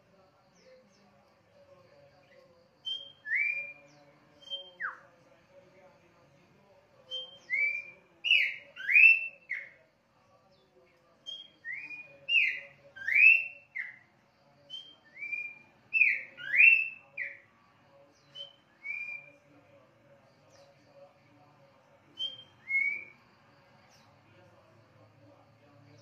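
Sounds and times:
bird singing whistled phrases: 0:02.8 - 0:05.1, 0:07.1 - 0:09.8, 0:11.2 - 0:14.0, 0:14.7 - 0:17.4, 0:18.2 - 0:19.4, 0:22.2 - 0:23.2.

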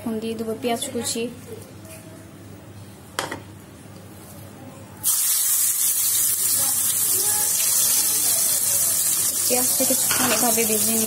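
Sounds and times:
onion sizzling in hot oil: 0:05.0 - 0:11.0.

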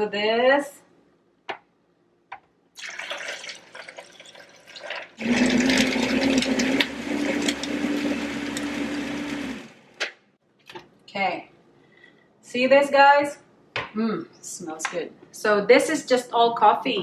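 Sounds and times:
coffee pouring onto ice: 0:02.8 - 0:07.8
blender motor running: 0:05.2 - 0:09.8.

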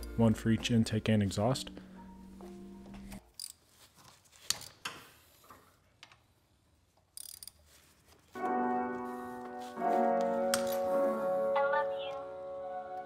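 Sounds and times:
sustained piano-like music: 0:00.0 - 0:03.2, 0:08.4 - 0:13.0.

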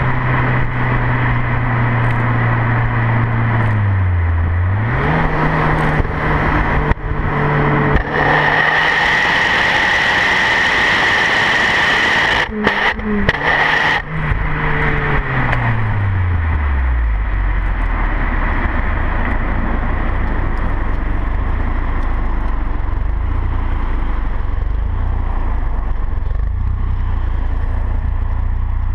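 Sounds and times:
car exhaust: 0:00.0 - 0:28.9.

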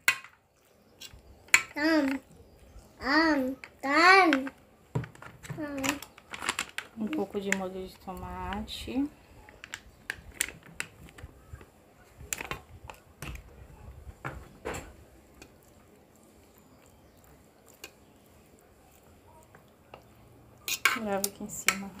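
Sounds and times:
utensil tapping baking dish: 0:20.7 - 0:22.0.

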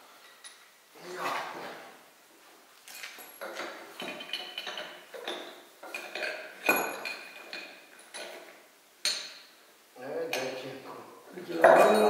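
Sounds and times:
metal tools clinking: 0:02.8 - 0:09.5, 0:11.5 - 0:12.0.

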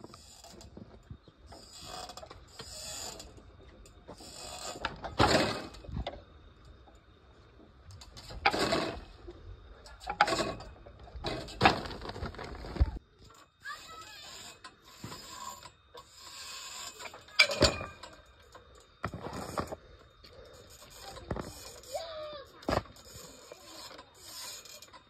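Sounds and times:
metal hardware clanking on a pipe: 0:16.7 - 0:19.2.

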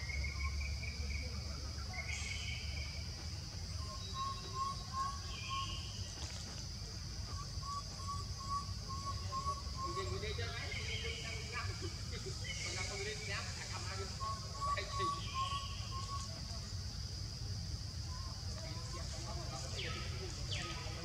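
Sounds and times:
high insect drone: 0:00.0 - 0:21.0
birds calling: 0:03.6 - 0:06.3, 0:07.1 - 0:16.8.

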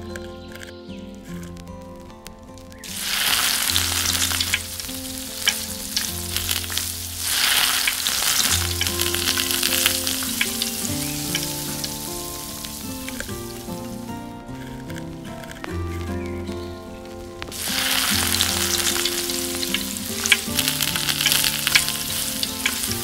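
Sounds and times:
food sizzling in hot oil: 0:02.8 - 0:23.0.

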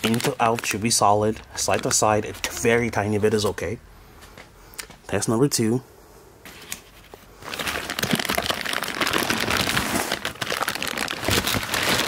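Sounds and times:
plastic bags crinkling: 0:00.0 - 0:02.8, 0:07.4 - 0:12.0.

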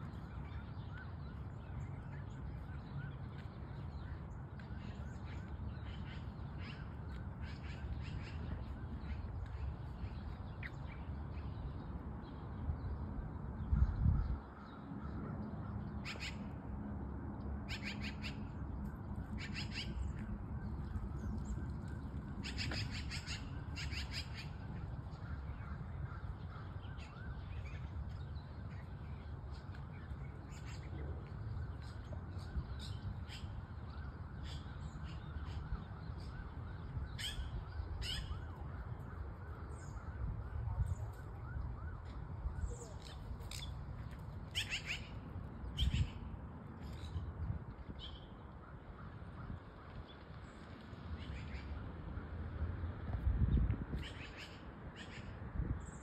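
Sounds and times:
birds calling: 0:17.7 - 0:40.2, 0:42.6 - 0:47.2.

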